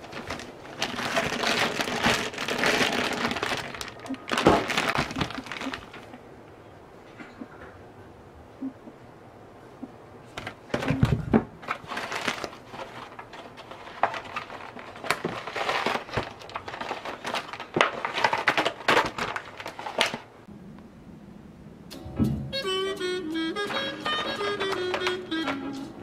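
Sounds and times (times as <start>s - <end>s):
items thumping down: 0.0s - 6.0s, 10.3s - 20.3s
plastic packaging crinkling: 0.0s - 6.1s, 11.6s - 20.3s.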